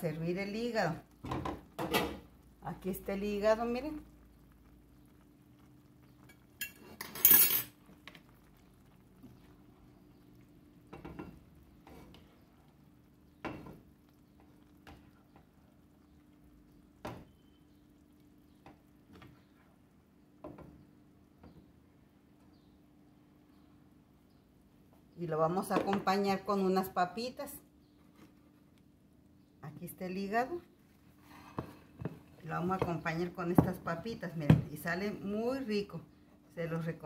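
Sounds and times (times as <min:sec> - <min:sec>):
spoon scraping a frying pan: 0:06.2 - 0:07.8
clinks on pan and plate: 0:06.3 - 0:07.8.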